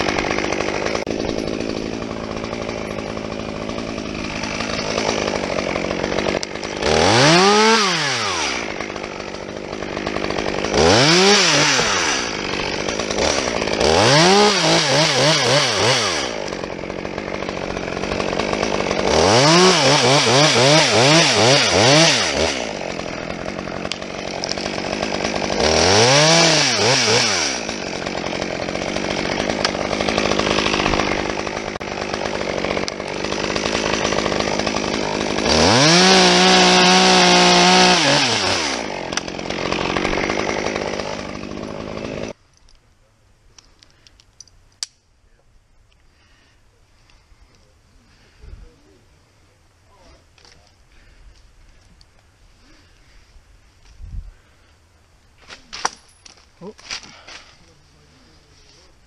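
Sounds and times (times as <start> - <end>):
chainsaw idling and revving: 0.0 - 42.4, 49.9 - 51.2, 54.3 - 54.7.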